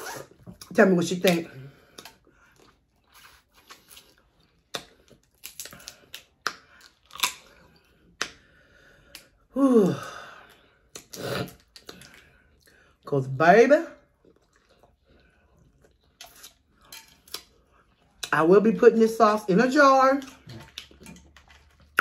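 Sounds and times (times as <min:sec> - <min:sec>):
chewing: 0:01.4 - 0:08.4, 0:10.4 - 0:13.0, 0:14.0 - 0:18.4, 0:20.2 - 0:22.0
crab shell cracking: 0:04.8 - 0:07.5.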